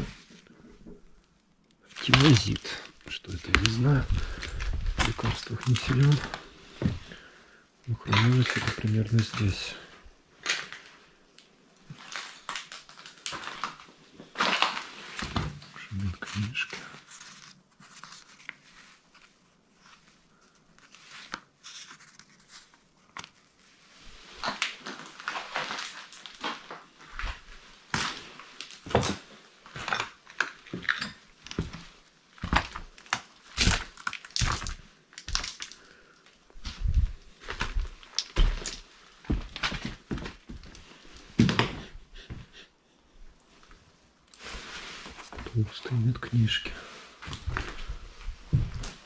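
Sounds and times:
footsteps crunching on debris: 1.8 - 7.2, 8.0 - 9.8, 11.9 - 17.6, 24.2 - 35.8, 36.5 - 41.8, 46.8 - 49.0.

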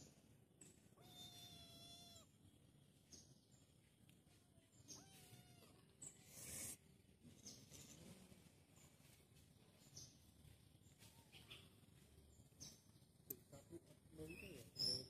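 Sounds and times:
kitten meowing: 1.0 - 2.3, 4.9 - 5.8.

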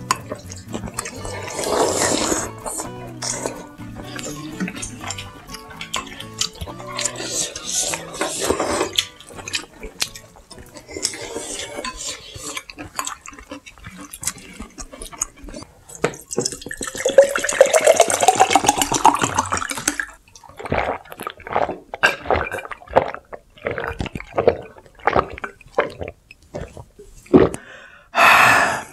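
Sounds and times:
gulping: 0.0 - 27.8
drink poured into a glass: 16.3 - 20.1.

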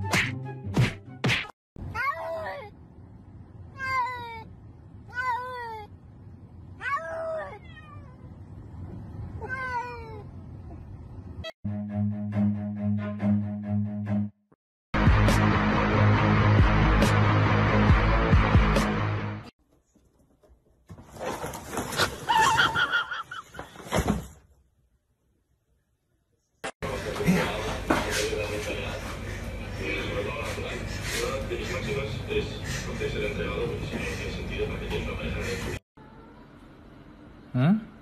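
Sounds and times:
cat meowing: 6.8 - 8.4, 9.4 - 10.8
rustling: 19.7 - 24.6.

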